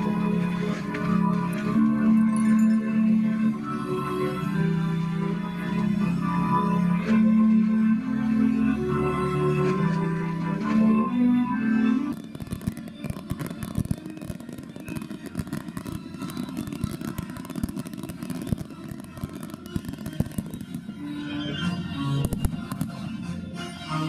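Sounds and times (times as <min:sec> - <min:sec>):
music: 0:00.0 - 0:24.0
fireworks popping and banging: 0:12.1 - 0:21.6, 0:22.2 - 0:23.2.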